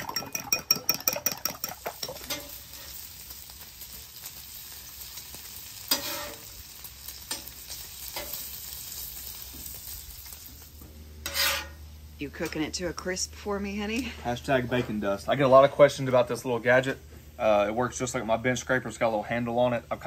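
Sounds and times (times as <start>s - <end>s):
spoon beating eggs in a bowl: 0.0s - 2.2s
bacon sizzling on a griddle: 0.0s - 20.0s.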